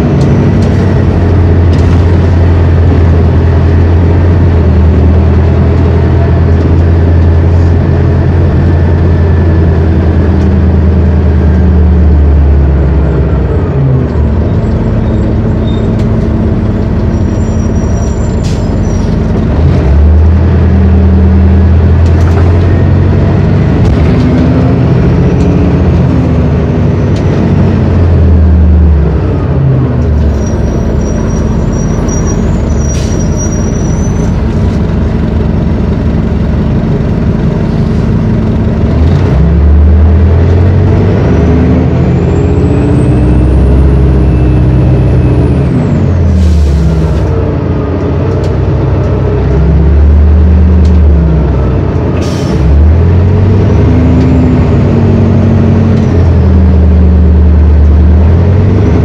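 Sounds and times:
bus diesel engine pulling: 0:00.0 - 0:59.0.

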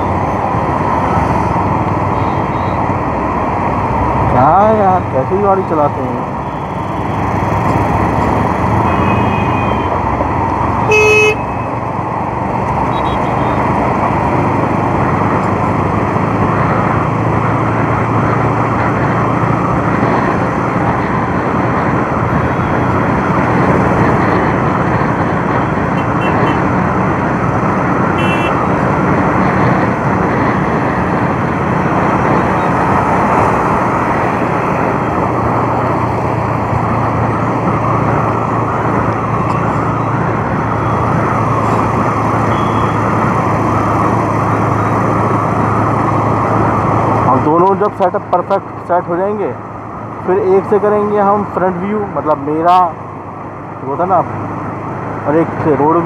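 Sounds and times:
motorcycle running: 0:00.0 - 0:52.0
road noise: 0:00.0 - 0:56.0
vehicle horn beeps: 0:08.8 - 0:09.9, 0:10.9 - 0:11.6, 0:28.2 - 0:28.6, 0:42.5 - 0:43.0.

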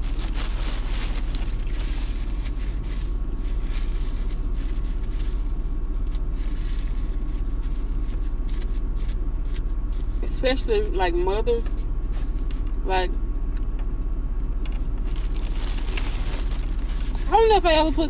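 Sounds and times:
car engine idling: 0:11.7 - 0:18.0.

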